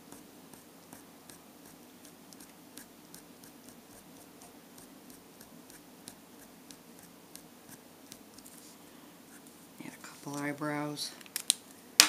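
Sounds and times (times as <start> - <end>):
pen tip tapping and scratching: 0.0 - 8.6.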